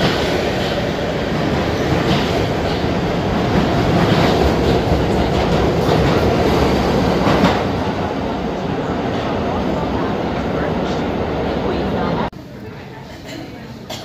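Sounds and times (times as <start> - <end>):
train wheels rumbling on rail: 0.0 - 12.3
wheels clacking over rail joints: 1.8 - 7.8.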